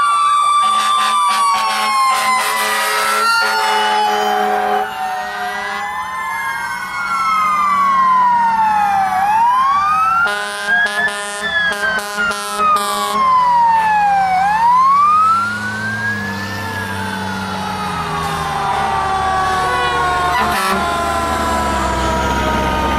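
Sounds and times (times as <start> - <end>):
fire truck siren wailing: 0.0 - 22.9
short horn blasts: 0.7 - 4.8, 10.2 - 13.2, 19.7 - 20.9.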